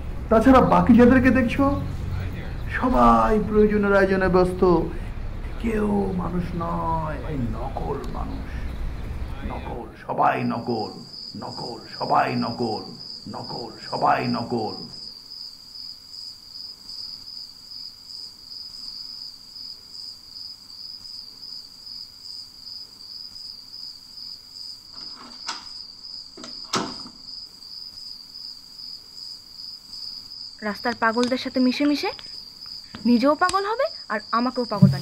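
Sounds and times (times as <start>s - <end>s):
cricket chirping: 0.0s - 35.0s
sharp knocks: 34.8s - 35.0s.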